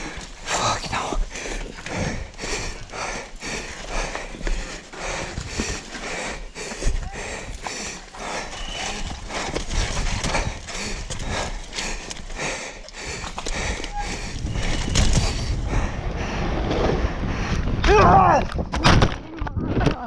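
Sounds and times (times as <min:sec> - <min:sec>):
mountain bike rattling over rocks: 0:00.0 - 0:15.7.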